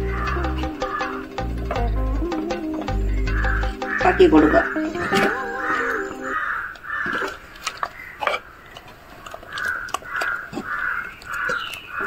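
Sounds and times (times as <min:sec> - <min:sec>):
crow cawing: 0:00.0 - 0:01.2, 0:03.2 - 0:08.6, 0:09.6 - 0:12.0.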